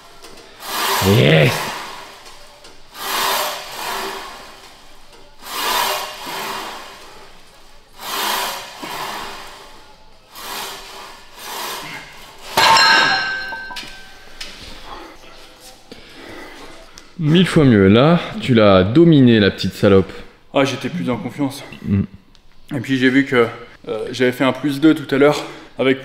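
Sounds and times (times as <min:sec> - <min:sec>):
person breathing hard: 0:15.9 - 0:16.9.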